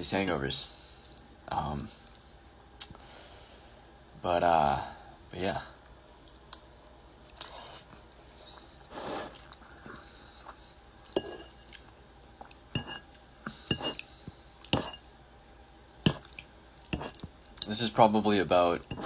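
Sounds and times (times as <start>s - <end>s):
soft chewing: 5.8s - 15.0s, 15.6s - 17.8s
fork clinking on dishes: 11.2s - 11.8s, 12.8s - 13.1s, 14.8s - 15.0s.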